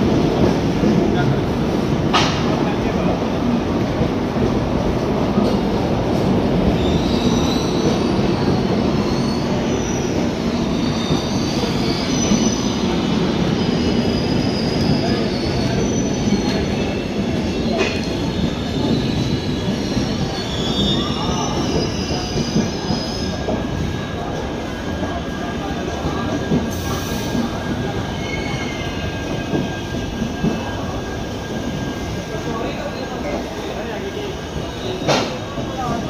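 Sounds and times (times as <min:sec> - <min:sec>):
train clack: 0:00.0 - 0:08.7, 0:14.8 - 0:20.4, 0:25.1 - 0:31.0, 0:34.9 - 0:36.0
train coaches rumbling past: 0:00.0 - 0:36.0.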